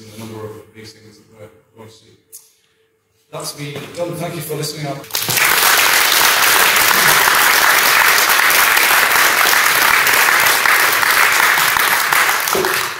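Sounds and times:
audience applauding: 0:05.1 - 0:12.9.

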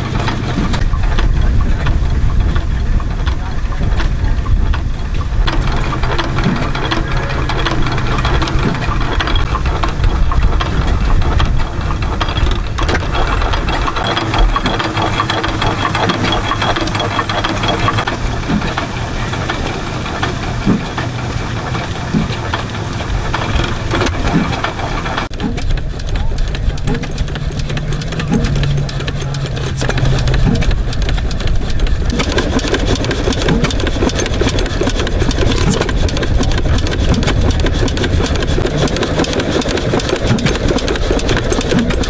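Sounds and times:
old gas engine running: 0:00.0 - 0:42.0
sharp engine knocks: 0:00.0 - 0:42.0.

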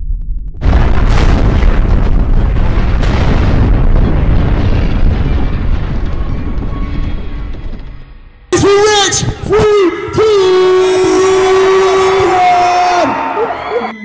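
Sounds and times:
sudden loud hit: 0:00.0 - 0:08.4
deep rumble: 0:00.0 - 0:08.5.

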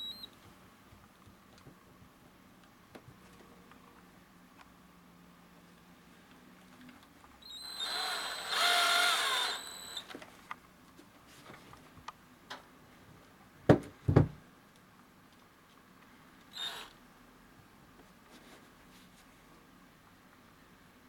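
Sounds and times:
cordless drill motor whine: 0:07.4 - 0:10.1, 0:16.5 - 0:17.0.

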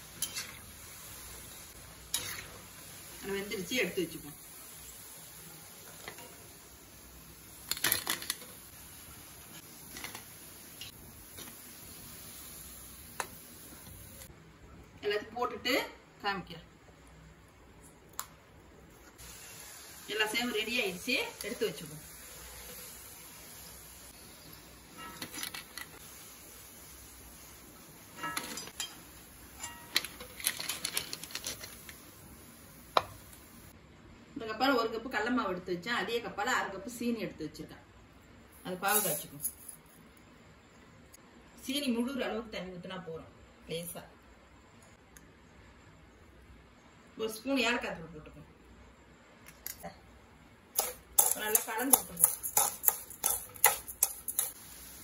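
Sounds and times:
faint steady hiss: 0:00.0 - 0:55.0
fried snacks clattering in metal bowl: 0:07.6 - 0:08.6, 0:29.6 - 0:31.9, 0:50.8 - 0:54.6
fried snacks clattering into metal drainer: 0:07.7 - 0:08.6, 0:29.6 - 0:31.9.

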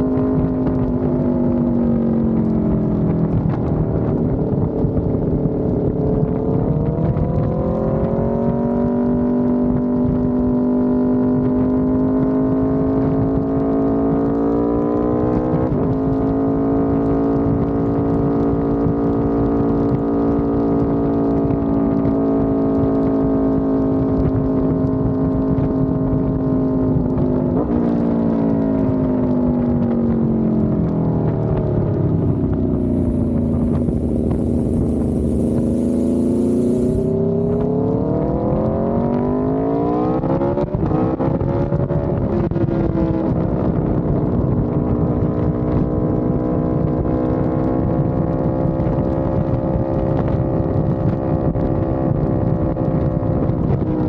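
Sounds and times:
motorcycle engine revving: 0:00.0 - 0:22.1, 0:29.9 - 0:53.1
wind rush: 0:30.6 - 0:54.0.

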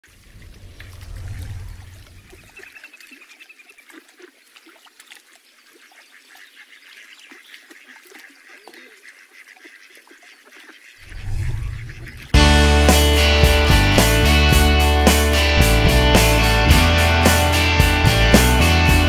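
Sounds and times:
water birds calling: 0:00.0 - 0:19.0
low swell: 0:00.1 - 0:02.5, 0:11.1 - 0:19.0
loud music: 0:12.4 - 0:19.0.

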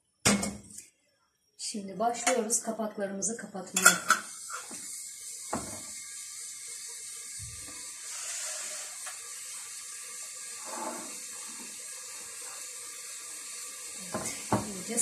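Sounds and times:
steady hiss: 0:03.8 - 0:15.0.

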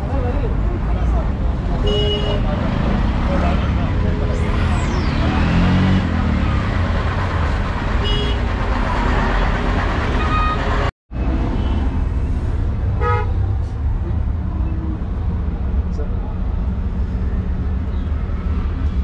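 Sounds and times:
traffic rumble: 0:00.0 - 0:19.0
car horn toots: 0:08.0 - 0:08.5, 0:10.2 - 0:10.8.

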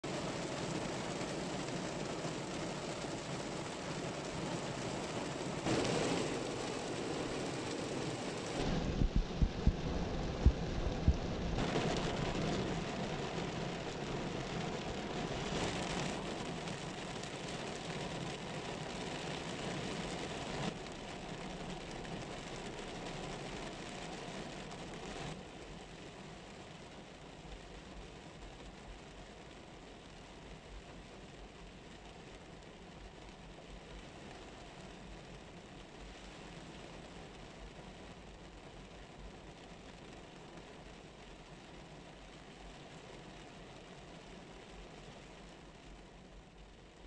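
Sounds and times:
heavy rain on car windshield: 0:00.0 - 0:47.0
low thumps: 0:08.6 - 0:11.6.

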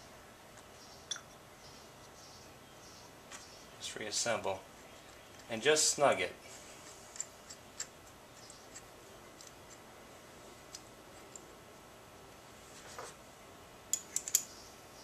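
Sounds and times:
small metal parts clicking: 0:13.9 - 0:14.5.

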